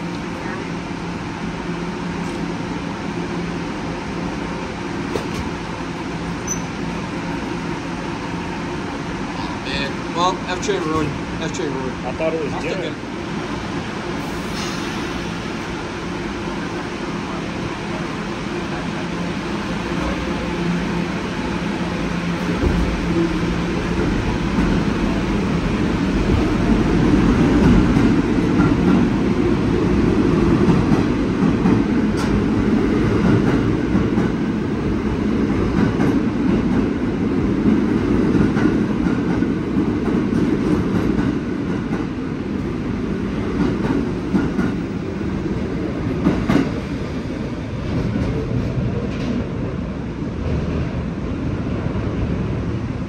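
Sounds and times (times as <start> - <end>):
train wheels rumbling on rails: 0.0 - 53.0
sharp clicks of train wheels: 30.6 - 32.5, 43.5 - 44.8.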